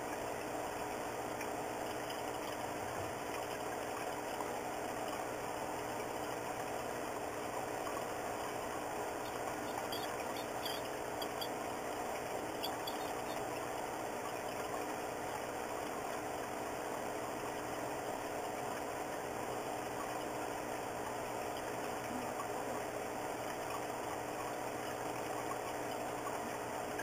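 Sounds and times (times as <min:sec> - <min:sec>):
steady mechanical hum: 0:00.0 - 0:27.0
short high squeaks: 0:09.2 - 0:11.6, 0:12.6 - 0:13.4.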